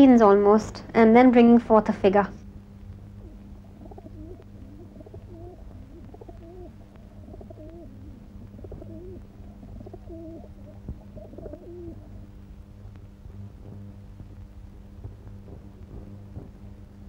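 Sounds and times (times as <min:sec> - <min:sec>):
low electrical hum: 0:00.0 - 0:17.0
pigeons cooing: 0:03.2 - 0:12.3.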